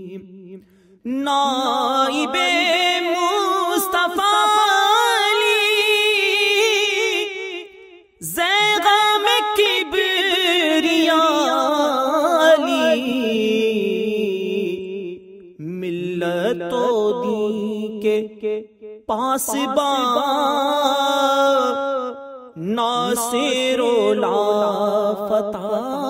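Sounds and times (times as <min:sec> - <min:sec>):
person singing ornamented notes: 0:22.6 - 0:26.0.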